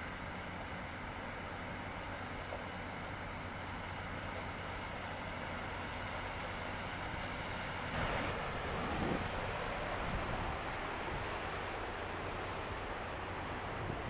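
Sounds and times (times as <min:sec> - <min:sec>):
rush of wind and water: 0:00.0 - 0:14.0
ship engine hum: 0:00.0 - 0:14.0
wind rumbling on microphone: 0:08.0 - 0:11.5, 0:13.6 - 0:14.0.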